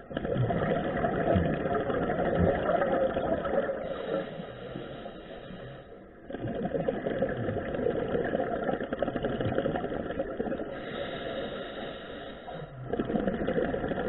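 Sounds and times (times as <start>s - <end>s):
bubbles burbling on exhalation: 0.0s - 3.9s, 6.3s - 10.8s, 12.6s - 14.0s
diver breathing in: 3.7s - 6.2s, 10.7s - 13.0s.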